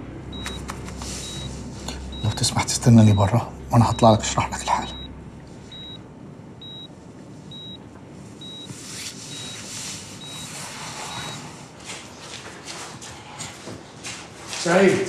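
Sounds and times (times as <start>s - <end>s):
patient monitor beeping: 0.3s - 11.8s.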